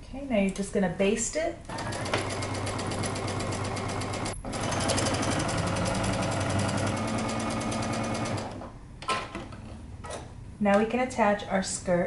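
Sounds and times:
sewing machine stitching: 1.7s - 8.7s.

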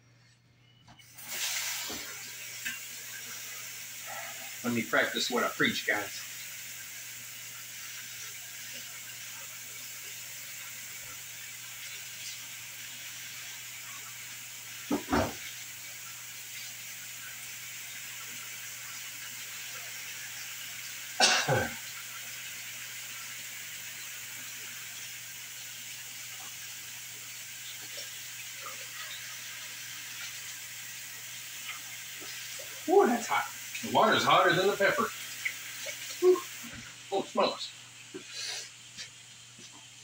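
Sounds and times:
steady hiss: 1.1s - 40.0s
person coughing: 21.2s - 21.8s.

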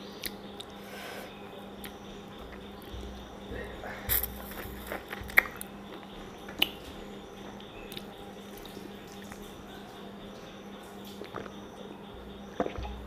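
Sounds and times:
faint steady hum: 0.0s - 13.0s
wet mouth clicks and smacks: 4.1s - 5.7s.

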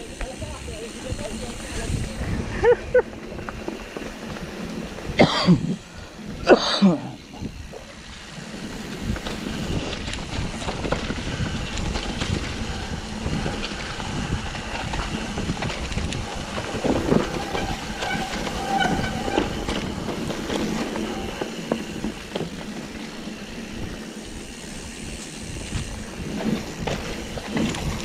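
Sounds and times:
bike tyres rumbling on trail: 0.0s - 28.0s
rider coughing or shouting: 5.2s - 5.8s, 6.4s - 7.3s
rattling ticks: 7.5s - 28.0s.

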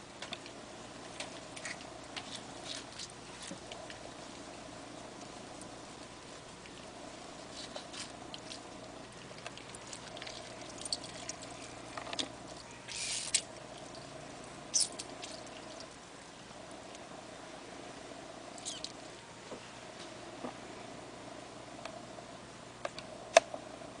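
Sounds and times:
juice dripping: 0.0s - 17.2s, 18.4s - 19.3s
faint steady hum: 0.0s - 24.0s
fruit squeezed by hand: 12.9s - 13.5s.

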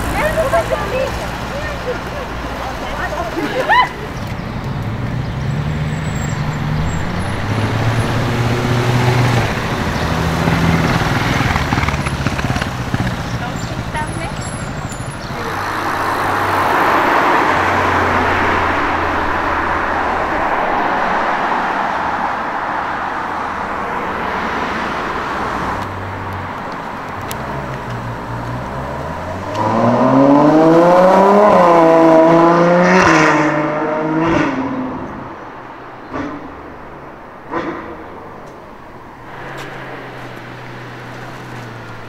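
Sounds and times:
road and tyre noise: 0.0s - 42.0s
car accelerating past: 15.5s - 26.1s, 27.4s - 35.4s.

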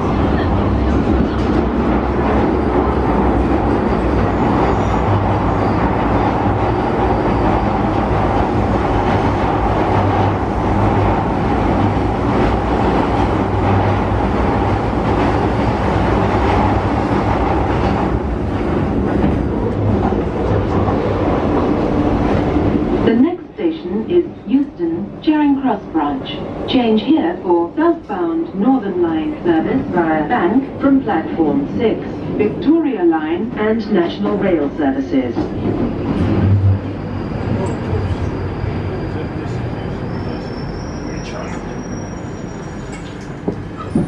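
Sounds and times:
train wheels rumbling on rail: 0.0s - 44.0s.

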